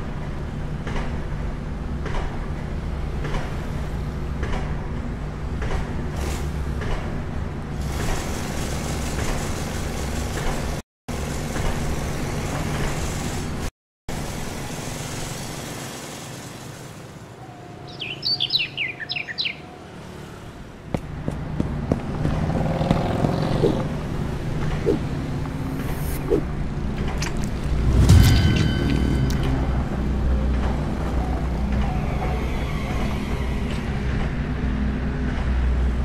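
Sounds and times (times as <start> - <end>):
bird chirping descending notes: 17.4 - 19.8.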